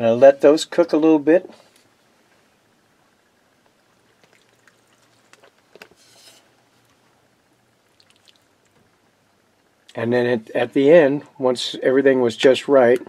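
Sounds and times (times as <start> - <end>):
wooden spoon stirring soup: 3.6 - 7.2.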